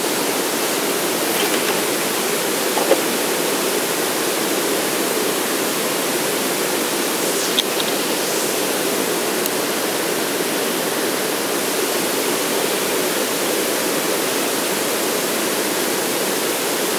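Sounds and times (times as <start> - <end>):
running water rushing: 0.0 - 12.1.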